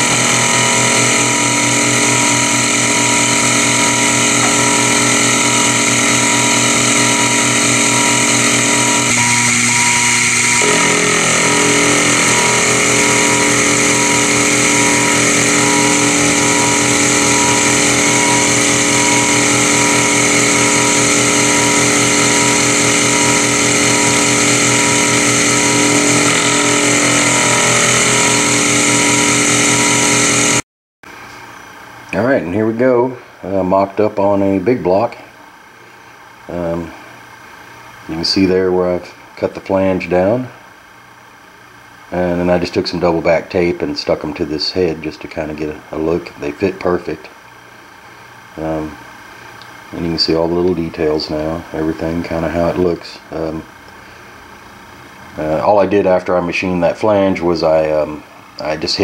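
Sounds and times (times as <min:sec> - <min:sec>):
milling machine cutting metal: 0:00.0 - 0:30.6.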